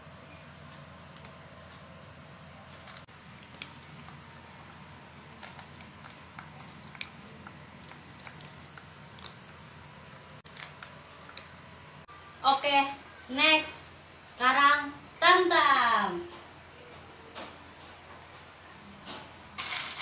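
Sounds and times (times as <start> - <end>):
cat crunching dry kibble: 5.3 - 9.6.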